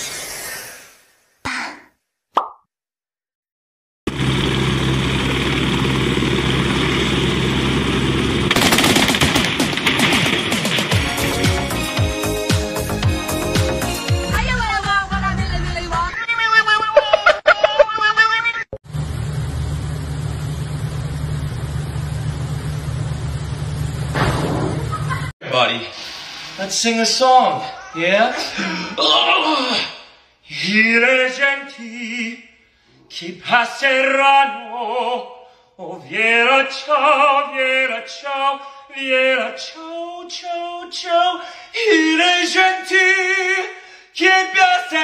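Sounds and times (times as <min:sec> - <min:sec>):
helicopter engine and rotor: 0:04.1 - 0:08.7.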